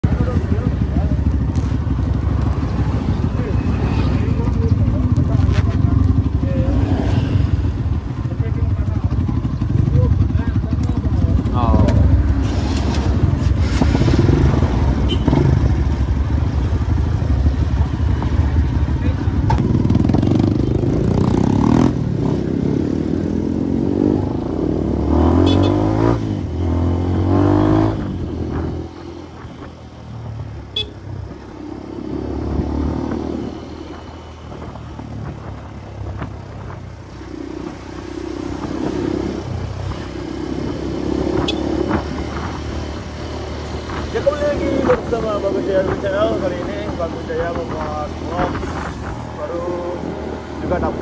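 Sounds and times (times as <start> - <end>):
motorcycle engine accelerating: 0.0 - 51.0.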